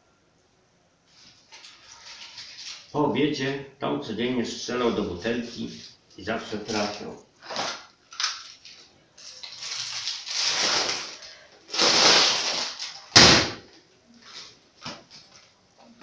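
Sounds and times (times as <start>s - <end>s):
sharp gunshot bang: 13.2s - 13.6s.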